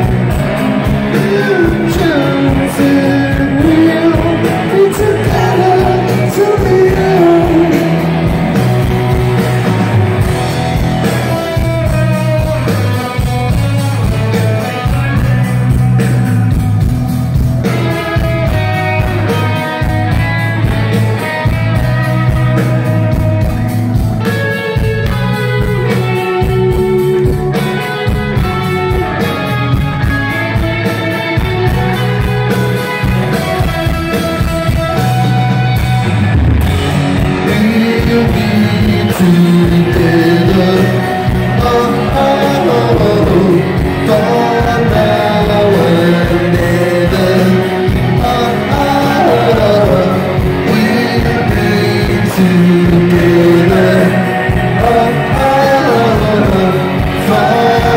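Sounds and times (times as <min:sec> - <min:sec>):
person singing: 0:00.0 - 0:13.3, 0:36.7 - 0:57.9
bass guitar: 0:00.0 - 0:57.9
drums: 0:00.0 - 0:57.9
electric guitars: 0:00.0 - 0:57.9.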